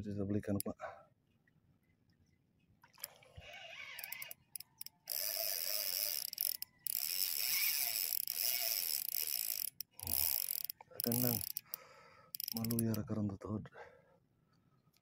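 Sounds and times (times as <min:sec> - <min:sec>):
fishing reel buzzing: 0:03.0 - 0:13.0.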